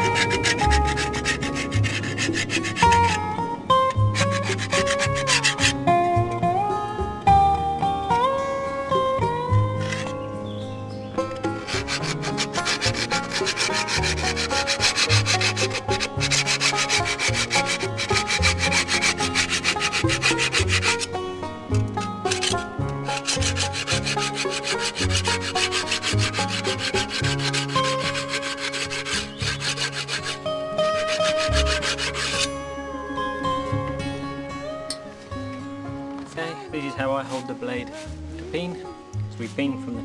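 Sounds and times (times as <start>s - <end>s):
steel scraper rasping on scythe blade: 0.0s - 3.3s, 3.9s - 5.8s, 11.4s - 21.2s, 22.0s - 32.6s.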